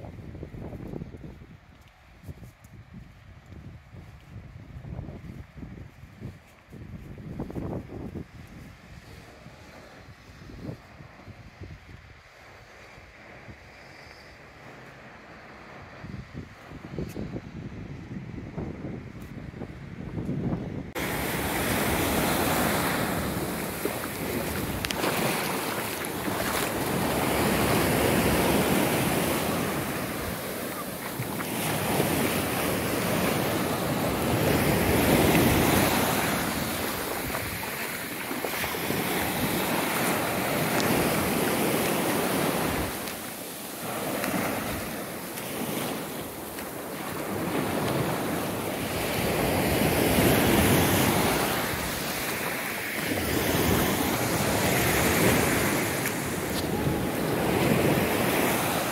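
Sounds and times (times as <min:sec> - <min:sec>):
waves washing up beach: 0:20.9 - 0:58.9.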